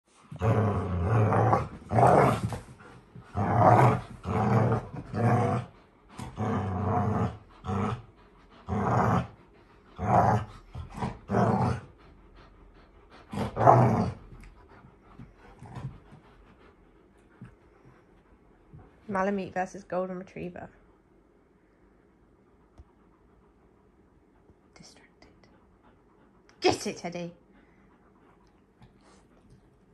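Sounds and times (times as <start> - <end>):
dogs play-growling: 0.1 - 19.1.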